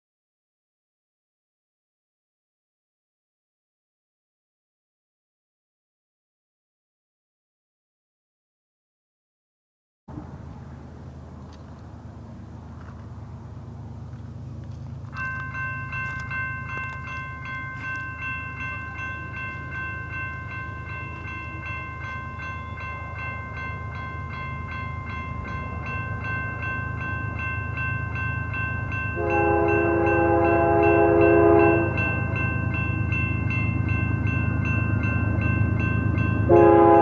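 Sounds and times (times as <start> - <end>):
freight train rumble: 10.1 - 37.0
crossing warning bell ringing: 13.2 - 37.0
locomotive horn blast: 29.2 - 32.2, 36.5 - 37.0.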